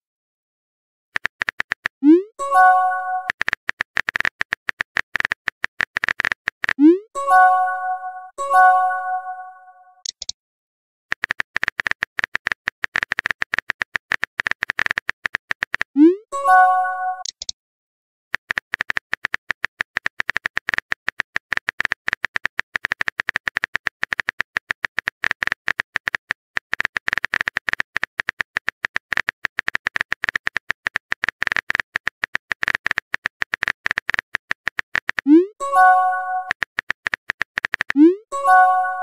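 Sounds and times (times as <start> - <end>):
phone keyboard typing clicks: 1.2 - 2.0, 2.6 - 6.9, 11.1 - 16.0, 18.4 - 39.0.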